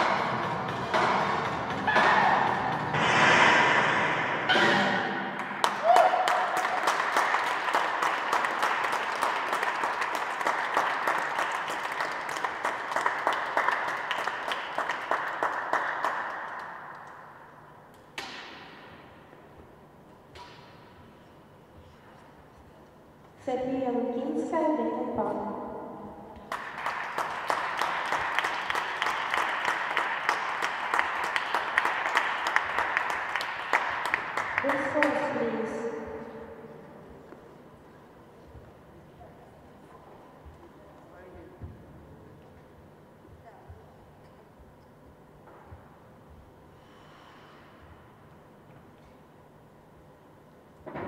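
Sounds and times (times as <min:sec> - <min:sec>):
audience applauding: 0:05.4 - 0:17.2, 0:26.5 - 0:35.4.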